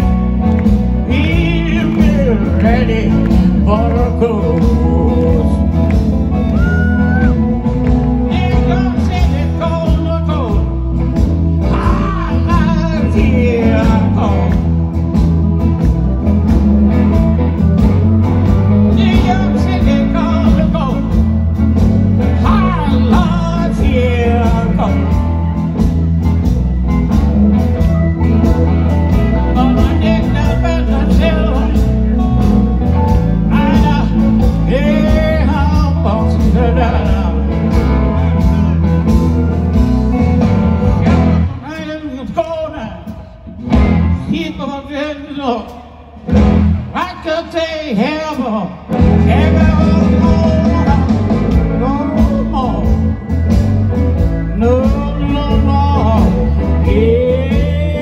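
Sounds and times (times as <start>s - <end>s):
live blues band playing: 0.0s - 58.0s
man singing into a microphone: 1.0s - 7.3s, 8.2s - 10.8s, 11.6s - 14.7s, 18.9s - 21.2s, 22.2s - 25.2s, 29.5s - 32.5s, 33.1s - 39.0s, 46.9s - 53.0s, 54.5s - 58.0s.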